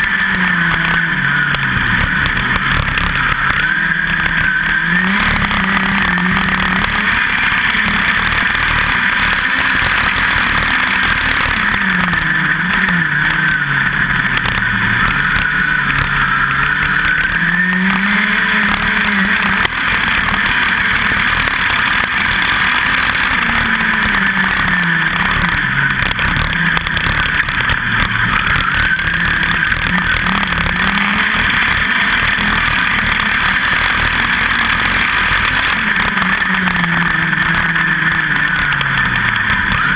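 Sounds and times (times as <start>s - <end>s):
race car engine at speed: 0.0s - 39.9s.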